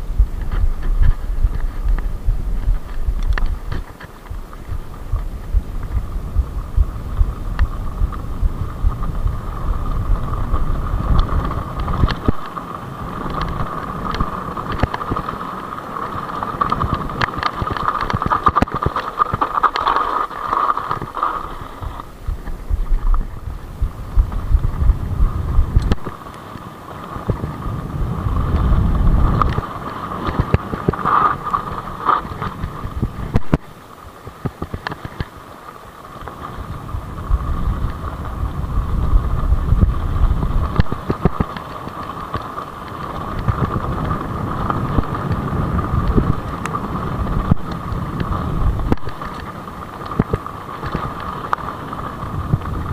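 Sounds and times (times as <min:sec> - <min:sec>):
high-pitched whine: 0:00.0 - 0:34.0
bike rattling clicks: 0:00.0 - 0:52.9
tyres rumbling over dirt: 0:00.0 - 0:52.9
wind buffeting microphone: 0:00.0 - 0:52.9.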